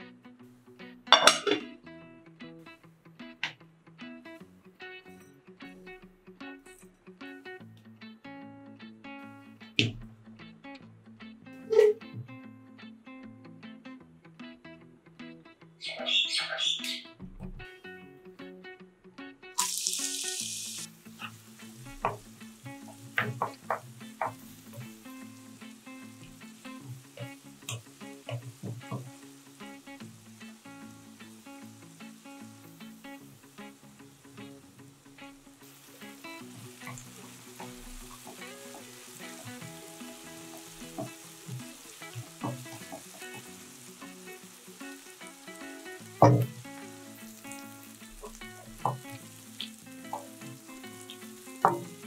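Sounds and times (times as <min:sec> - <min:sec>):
onions sizzling in hot oil: 0:19.6 - 0:52.0.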